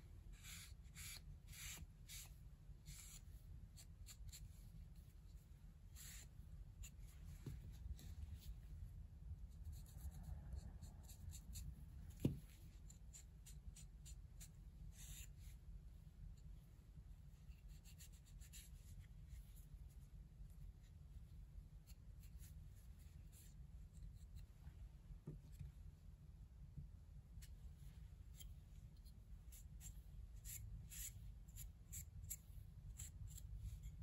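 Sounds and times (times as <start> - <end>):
low steady hum: 0.0 - 34.0
soft knock: 12.2 - 12.5.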